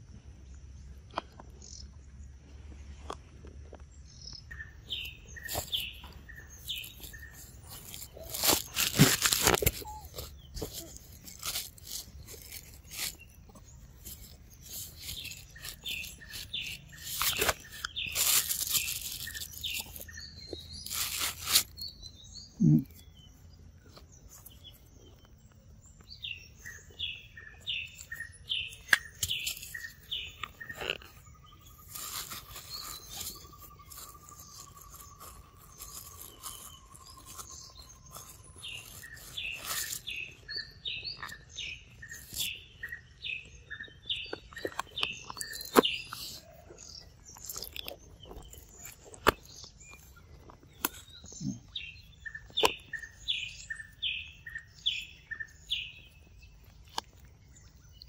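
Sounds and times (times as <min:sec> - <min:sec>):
birds chirping: 0:00.0 - 0:58.0
monkey chewing fruit: 0:04.8 - 0:21.9, 0:23.8 - 0:43.0, 0:43.9 - 0:53.9.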